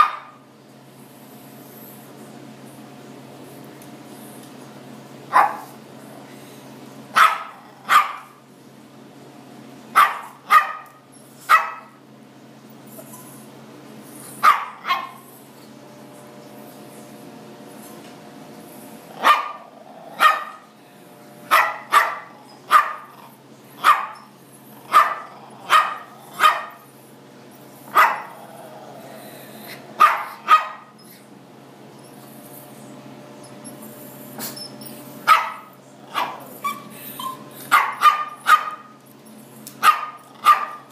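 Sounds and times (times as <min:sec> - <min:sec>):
small dog barking: 0:00.0 - 0:00.4, 0:05.3 - 0:05.8, 0:07.1 - 0:08.4, 0:09.9 - 0:12.0, 0:14.4 - 0:15.2, 0:19.1 - 0:20.7, 0:21.5 - 0:26.8, 0:27.9 - 0:28.4, 0:30.0 - 0:31.0, 0:35.2 - 0:39.0, 0:39.8 - 0:40.9
steady low hum: 0:00.0 - 0:40.9.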